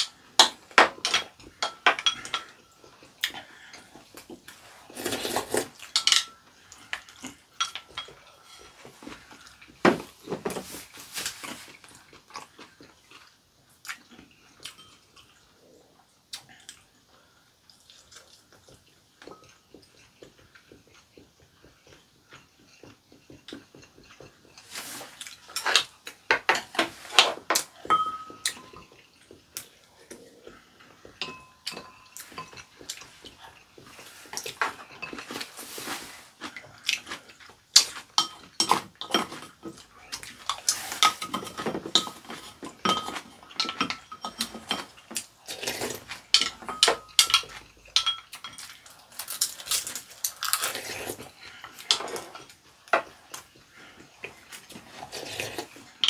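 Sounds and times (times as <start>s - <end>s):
chopsticks clinking on bowls: 0.0s - 3.0s, 5.0s - 8.8s, 25.3s - 29.6s, 31.0s - 36.0s, 37.0s - 50.7s
chewing and slurping: 0.0s - 56.0s.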